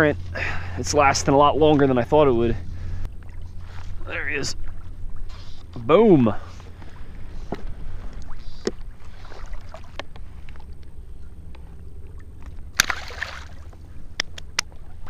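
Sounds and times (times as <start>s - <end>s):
low wind rumble: 0.0s - 15.0s
water noise: 0.0s - 15.0s
fish splashing into water: 12.7s - 13.8s.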